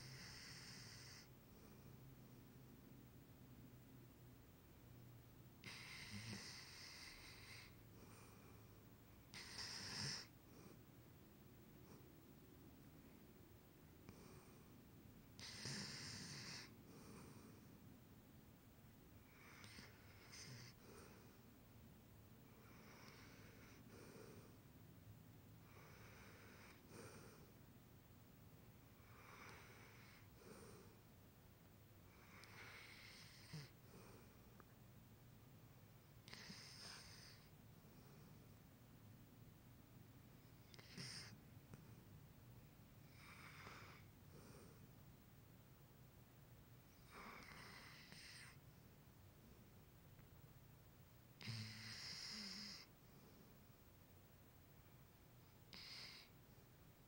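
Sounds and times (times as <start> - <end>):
dog snoring: 0.0 - 2.0, 5.6 - 10.8, 14.1 - 14.7, 15.4 - 17.7, 19.2 - 21.4, 22.5 - 24.6, 25.6 - 27.6, 29.0 - 31.0, 32.1 - 34.4, 36.2 - 38.4, 40.6 - 41.8, 43.0 - 44.8, 46.9 - 48.6, 51.4 - 53.4, 55.7 - 56.4.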